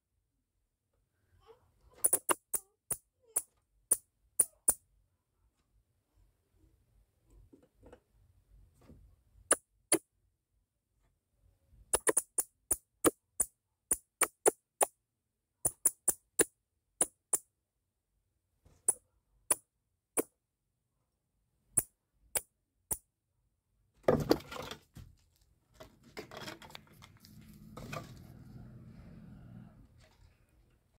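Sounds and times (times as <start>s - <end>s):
sharp irregular clicks: 11.9s - 14.9s, 15.6s - 17.4s.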